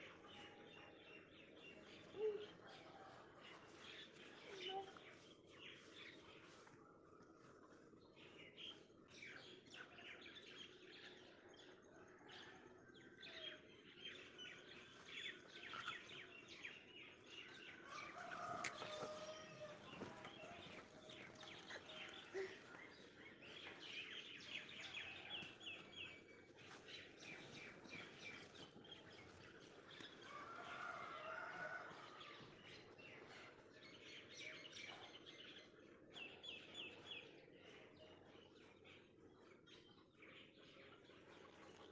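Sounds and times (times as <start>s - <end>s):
small birds chirping: 13.4s - 41.9s.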